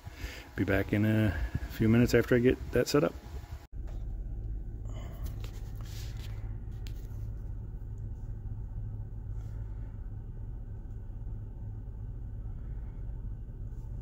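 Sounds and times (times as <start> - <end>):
car engine idling: 3.8 - 14.0.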